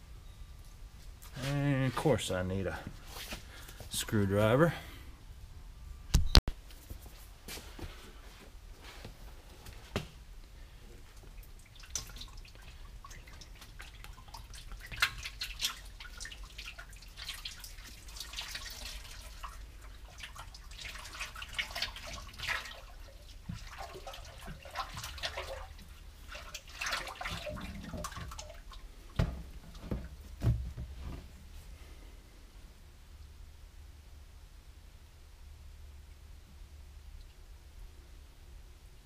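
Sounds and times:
oil pouring and splashing onto gears: 0:11.2 - 0:28.8
plastic jug knocks: 0:29.2 - 0:31.0.

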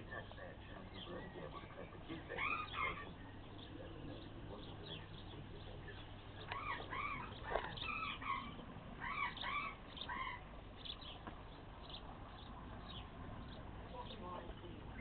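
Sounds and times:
animal calling: 0:00.0 - 0:11.2
low background noise: 0:00.0 - 0:15.0.

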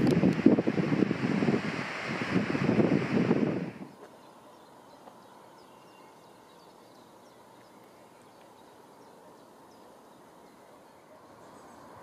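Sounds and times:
faint bird chirps: 0:04.0 - 0:12.0.

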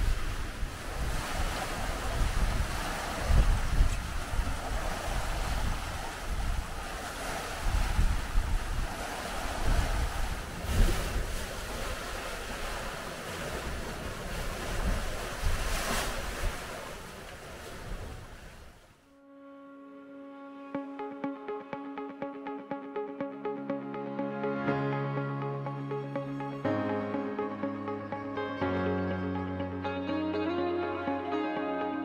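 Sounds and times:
boat wake rushing: 0:00.0 - 0:18.8
wind buffeting microphone: 0:00.0 - 0:18.8.

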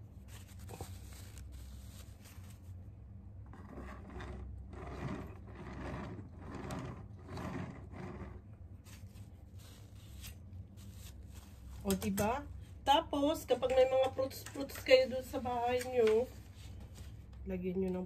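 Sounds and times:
cake turntable turning: 0:03.5 - 0:08.5
metal spatula scraping frosting: 0:03.5 - 0:10.3.

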